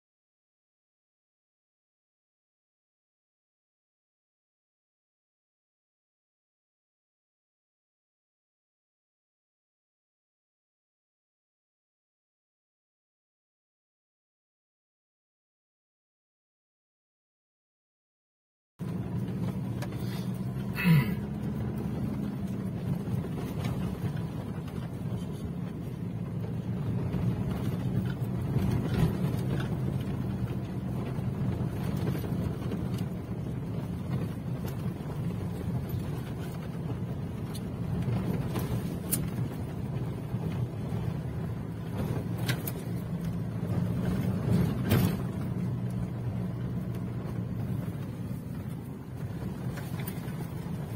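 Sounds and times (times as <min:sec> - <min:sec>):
low engine drone: 0:18.8 - 0:50.9.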